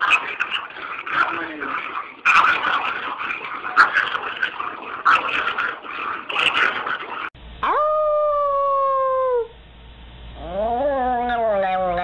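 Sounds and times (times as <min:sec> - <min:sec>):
dog howling: 0:07.6 - 0:09.5, 0:10.4 - 0:12.0.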